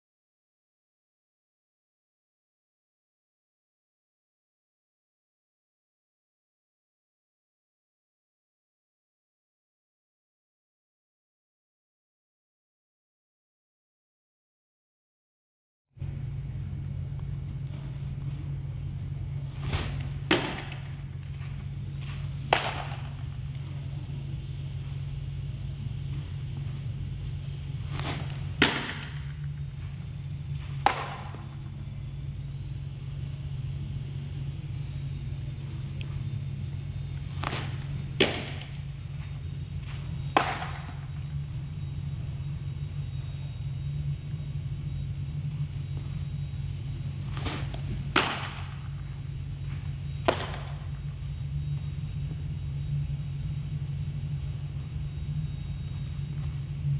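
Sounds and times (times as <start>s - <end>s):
steady low hum: 16.0s - 56.9s
steady low rumble: 16.0s - 56.9s
bat cracking baseball: 19.5s - 23.6s, 27.8s - 29.9s, 30.6s - 31.7s, 37.3s - 38.9s, 39.8s - 41.3s, 47.2s - 49.1s, 50.2s - 51.0s.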